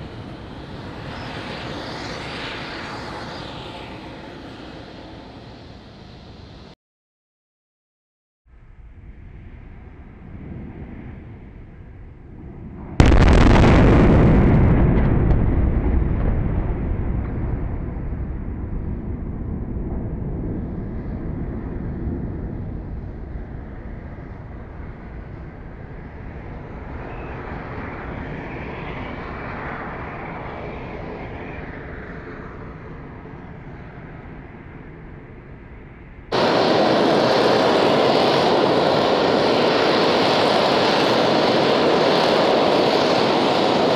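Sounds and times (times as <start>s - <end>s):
long rumble: 8.5s - 27.0s, 34.1s - 43.9s
loud explosion blast: 12.4s - 21.5s.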